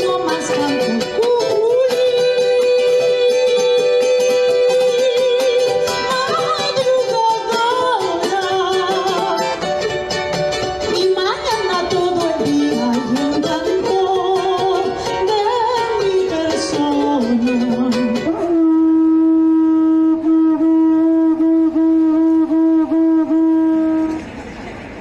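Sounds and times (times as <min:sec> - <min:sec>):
singing with music: 0:00.0 - 0:19.0
conch shell trumpet note: 0:18.4 - 0:24.4.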